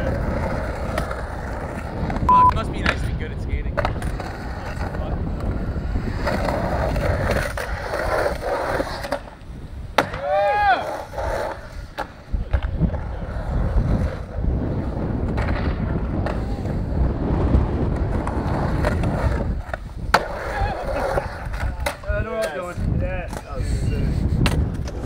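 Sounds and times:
skateboard wheels rolling on concrete: 0.0 - 25.0
skateboard clacks popping and landing: 3.7 - 10.5, 15.2 - 16.7, 17.8 - 22.6, 24.4 - 25.0.

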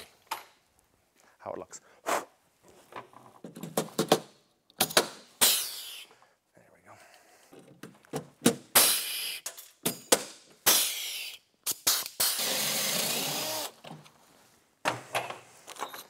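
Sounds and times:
rivet gun air hiss: 5.4 - 6.2, 8.8 - 9.5, 10.6 - 12.5.

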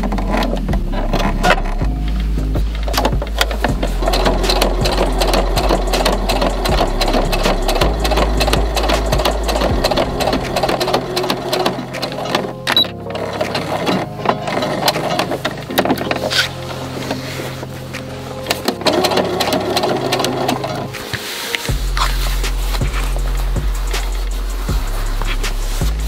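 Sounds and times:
electric sewing machine stitching: 18.7 - 20.9.

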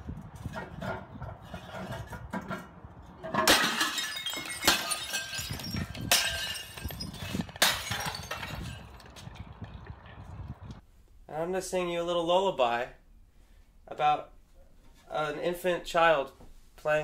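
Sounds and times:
sledgehammer blows: 0.4 - 10.8
shattering ceramic pieces: 3.3 - 10.2.

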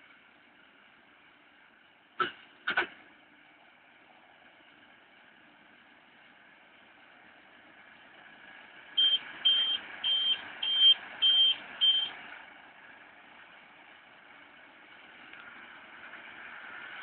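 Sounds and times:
tractor engine running: 0.0 - 17.0
high electronic warning beeps: 9.0 - 12.1.

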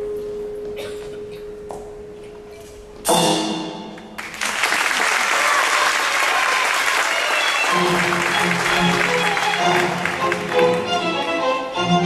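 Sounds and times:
audience applause: 4.2 - 11.5.

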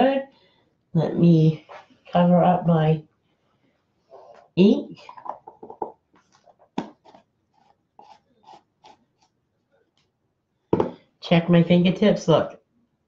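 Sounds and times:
jar handled on wooden table: 5.0 - 7.2, 10.8 - 11.0
jar lid clicking and scraping: 5.1 - 7.2.

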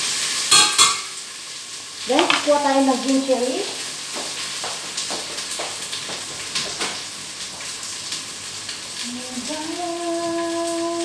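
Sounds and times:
onions sizzling in hot oil: 0.0 - 11.0
person humming: 9.0 - 11.0.

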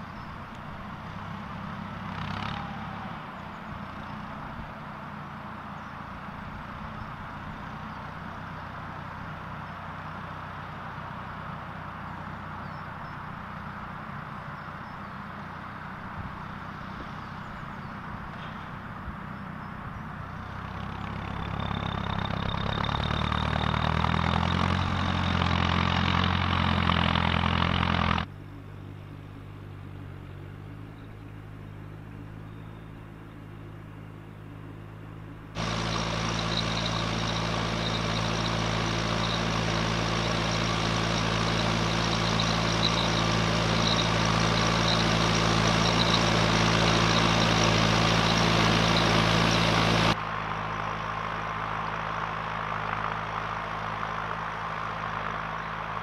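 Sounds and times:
tractor diesel engine running: 0.0 - 56.0
high whine: 35.3 - 56.0.

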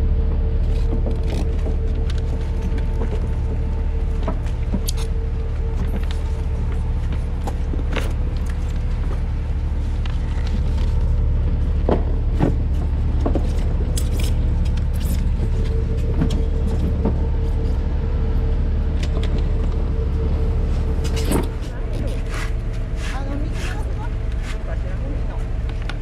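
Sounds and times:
engine rumbling: 0.0 - 26.0
knocks and clatter: 0.7 - 17.9.

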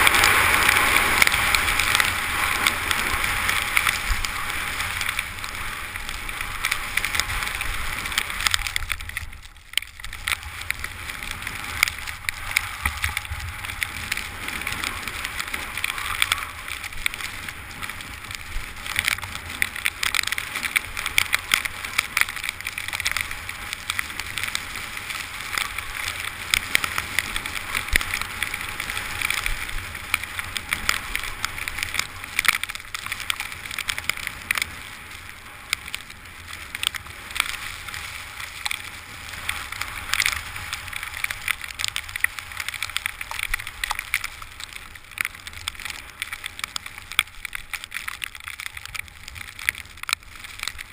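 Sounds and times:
skis sliding over snow: 0.0 - 50.9
wind rumbling on microphone: 0.0 - 50.9
small clicks and knocks: 6.6 - 10.9, 29.2 - 34.8, 38.6 - 50.9.

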